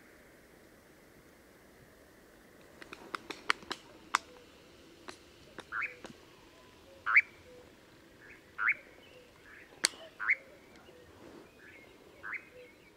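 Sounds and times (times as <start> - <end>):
bird wing clap: 2.6 - 4.4, 5.0 - 6.2
bird contact calls: 2.7 - 12.9.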